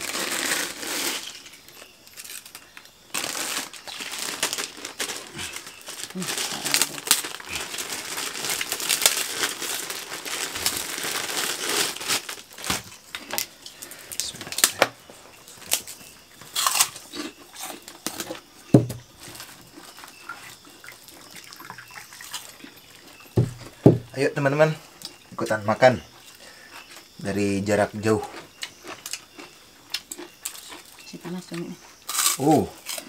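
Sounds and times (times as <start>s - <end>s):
plastic bag crinkling: 0.0s - 14.8s
crackers cracking: 0.0s - 21.3s, 32.0s - 33.0s.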